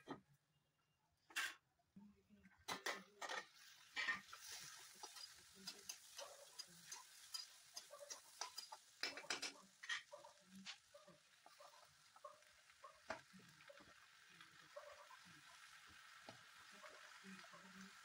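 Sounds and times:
metal spatula scraping a pan: 3.2 - 10.8
faint frying sizzle: 3.4 - 18.0.

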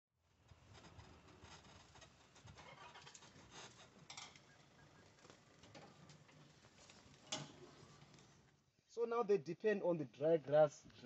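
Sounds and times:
soft crackles and rustles: 0.4 - 8.7.

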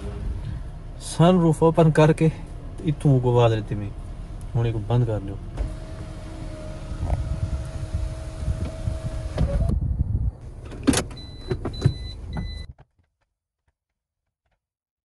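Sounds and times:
sunroof motor whining: 5.6 - 9.7.

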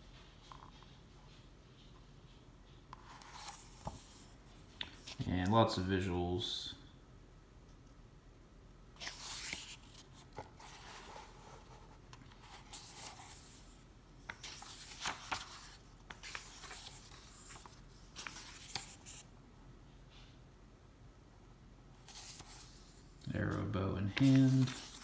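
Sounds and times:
book pages turning: 2.9 - 5.3, 9.0 - 19.3, 22.0 - 25.0.

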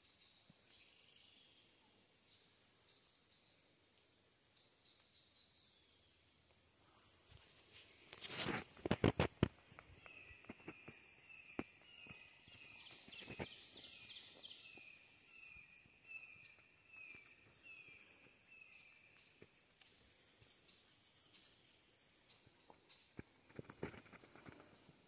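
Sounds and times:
songbirds whistling: 8.2 - 19.1, 23.7 - 24.5.

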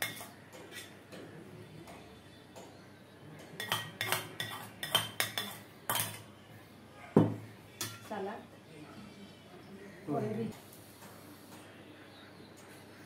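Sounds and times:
utensils clinking on plates: 0.0 - 1.2, 3.4 - 6.3.

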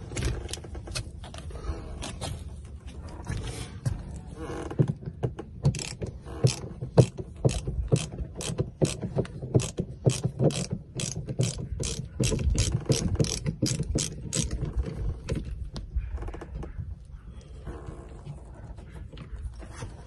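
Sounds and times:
ratcheting screwdriver clicking: 5.7 - 9.0, 9.6 - 14.5.

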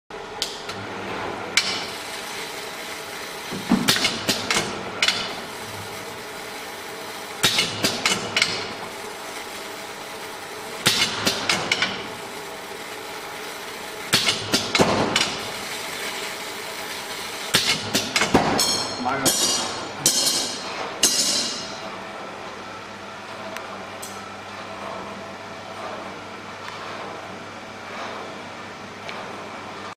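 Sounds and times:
machine humming: 0.1 - 29.9.

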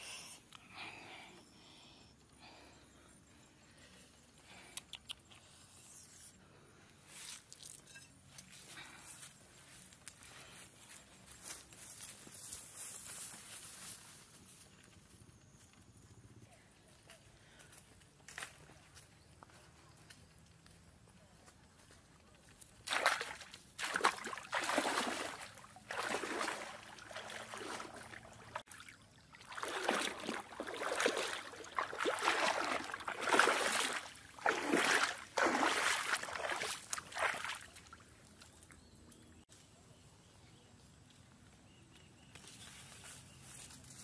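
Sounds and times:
water sloshing and splashing: 22.8 - 38.1.

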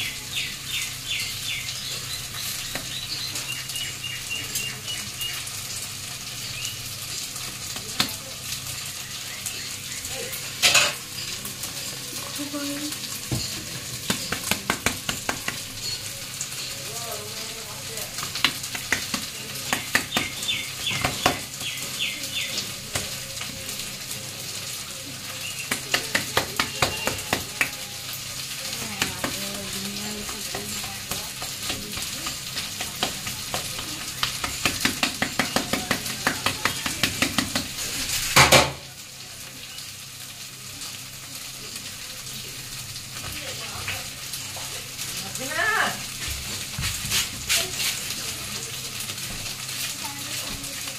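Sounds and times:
hands patting food paste: 14.0 - 15.7, 18.2 - 21.7, 25.5 - 27.8, 30.2 - 37.8.

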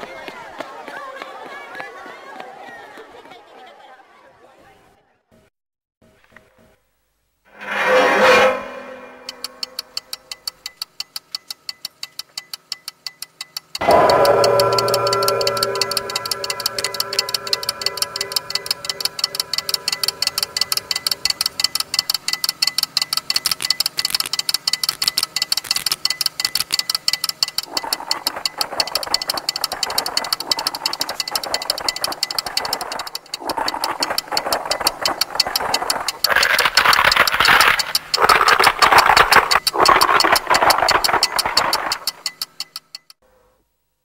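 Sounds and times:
harsh grinding noise: 7.5 - 10.4, 13.8 - 22.4, 27.5 - 42.5
fast mechanical ticking: 9.2 - 43.2.

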